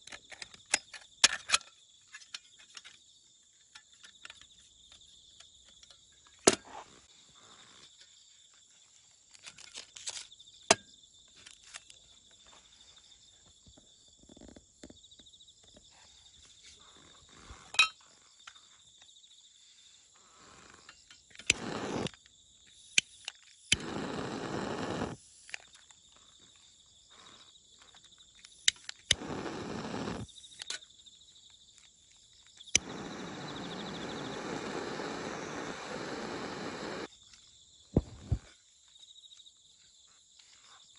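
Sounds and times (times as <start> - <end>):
insects trilling: 0.1 - 40.9
hissing bursts: 21.5 - 22.1, 23.7 - 25.5, 29.1 - 30.4, 32.7 - 37.1
lighter steady hiss: 21.5 - 22.1, 22.9 - 25.5, 28.6 - 30.7, 32.7 - 37.1
lighter click: 28.7 - 30.2, 32.8 - 37.1.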